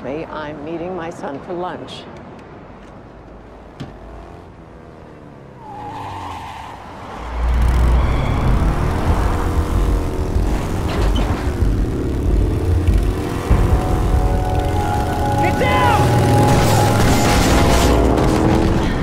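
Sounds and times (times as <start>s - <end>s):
motorcycle engine revving: 3.4s - 5.6s, 7.2s - 19.0s.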